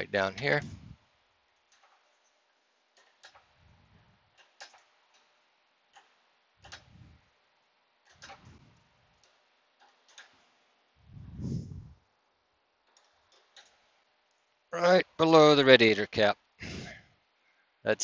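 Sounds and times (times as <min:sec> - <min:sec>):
dull low thumps: 0:11.0 - 0:12.0.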